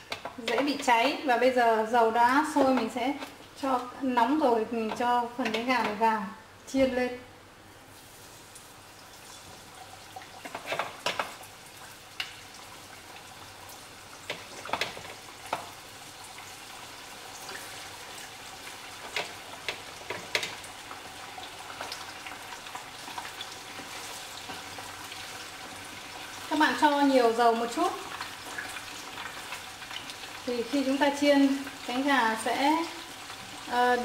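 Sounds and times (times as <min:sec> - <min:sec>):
chicken frying in hot oil: 0:07.8 - 0:34.0.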